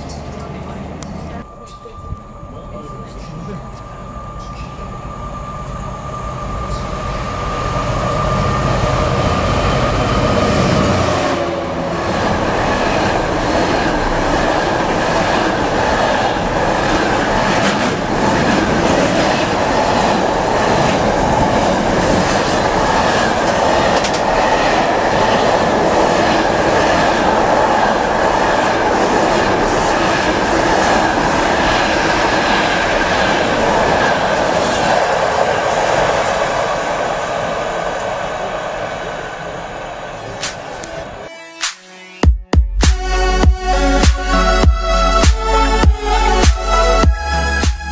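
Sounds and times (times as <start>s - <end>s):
locomotive engine passing: 0.0s - 41.2s
wheels clacking over rail joints: 16.4s - 25.2s.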